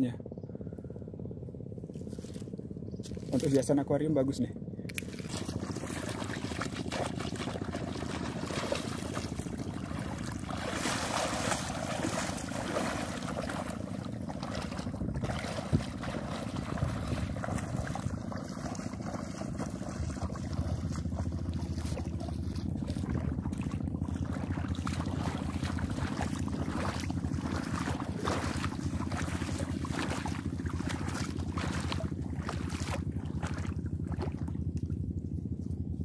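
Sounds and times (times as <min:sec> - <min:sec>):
feet sloshing through shallow water: 0:01.3 - 0:03.8, 0:04.9 - 0:36.0
wind buffeting microphone: 0:05.5 - 0:34.2.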